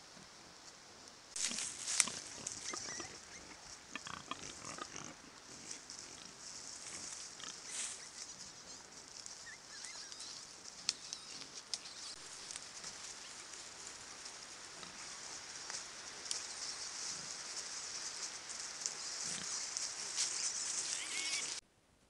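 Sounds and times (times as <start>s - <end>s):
rustling in dry leaves: 0.0s - 21.6s
wild boar grunting: 1.4s - 6.4s.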